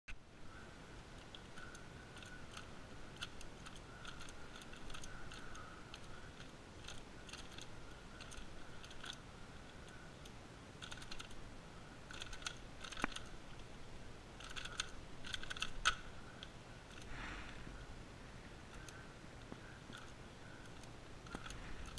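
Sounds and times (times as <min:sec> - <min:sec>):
plastic puzzle cube clicking: 0:01.2 - 0:09.2, 0:09.8 - 0:11.4, 0:12.1 - 0:13.7, 0:14.4 - 0:17.1, 0:19.9 - 0:21.9.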